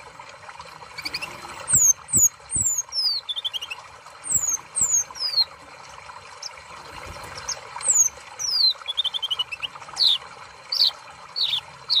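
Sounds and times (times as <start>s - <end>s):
bird song: 1.0s - 5.5s, 7.3s - 12.0s
bird trill of chirps: 1.0s - 5.5s, 7.4s - 12.0s.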